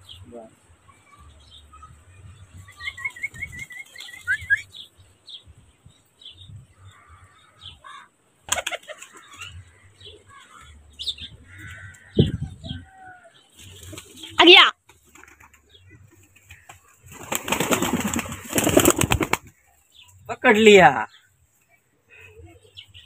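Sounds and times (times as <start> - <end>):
small birds chirping: 0.0 - 23.0
pigeon wings flapping: 8.5 - 9.3, 16.4 - 19.6.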